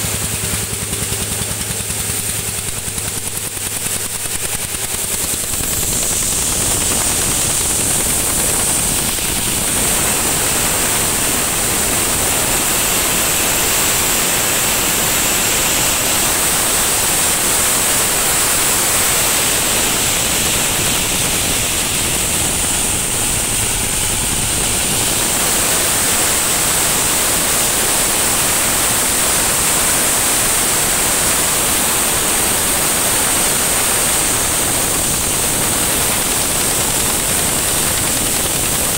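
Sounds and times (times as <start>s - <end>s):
diesel engine running: 0.0s - 38.9s
steady high whine: 0.0s - 38.9s
coffee rattling through machine: 2.3s - 29.0s.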